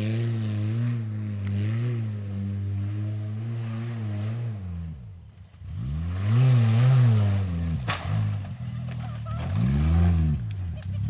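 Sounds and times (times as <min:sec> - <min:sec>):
suv engine revving: 0:00.0 - 0:11.0
sharp impact crack: 0:07.7 - 0:09.7.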